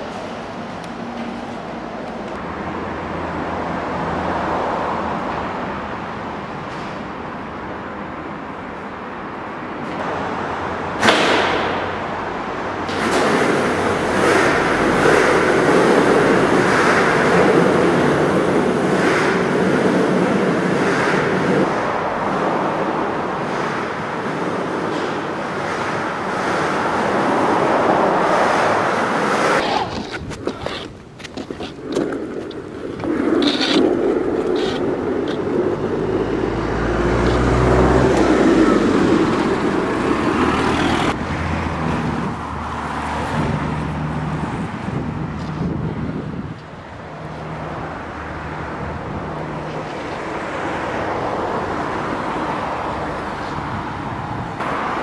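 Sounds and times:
road traffic noise: 0.0s - 55.0s
sharp smack: 11.0s - 11.9s.

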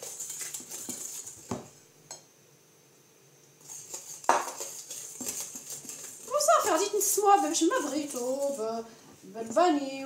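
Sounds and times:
whisk clicking against glass bowl: 3.7s - 8.4s.

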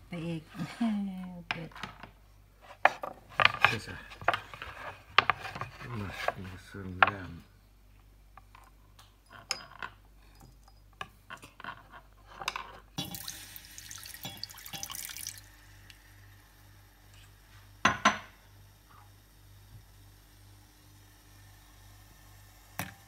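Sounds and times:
water pouring into pot: 13.0s - 16.4s.

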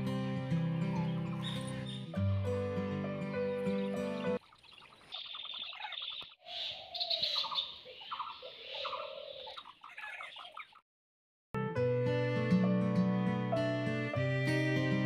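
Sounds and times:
background music: 0.0s - 4.4s, 11.6s - 15.0s
birds chirping: 0.8s - 2.3s, 3.5s - 10.8s.

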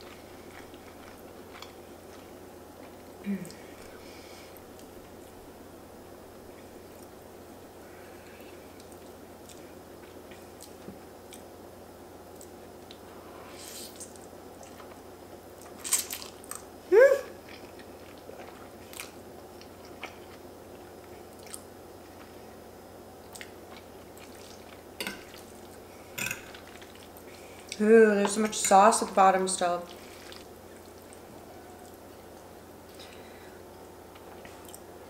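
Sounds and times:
chewing noodles: 0.0s - 3.2s, 17.4s - 22.4s, 23.2s - 27.8s, 29.9s - 33.2s, 33.8s - 35.0s.

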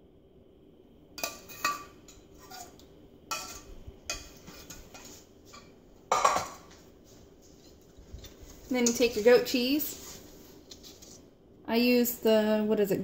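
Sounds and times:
metal spoon clinking on saucepan: 1.2s - 2.7s, 3.3s - 6.5s.

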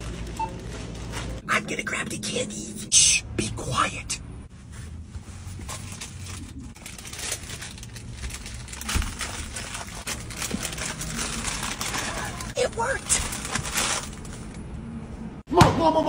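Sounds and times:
plastic wrappers crinkling: 0.0s - 1.4s, 5.7s - 14.6s.

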